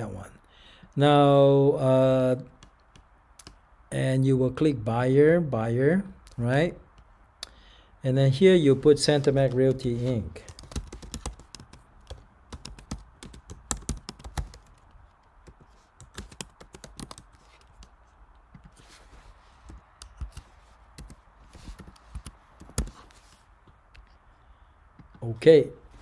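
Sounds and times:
typing on computer keyboard: 0:10.5 - 0:17.9, 0:19.7 - 0:23.0.

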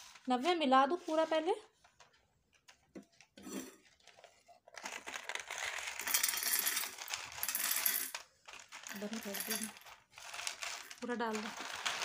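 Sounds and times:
dry beans poured into metal bowl: 0:05.7 - 0:12.0.

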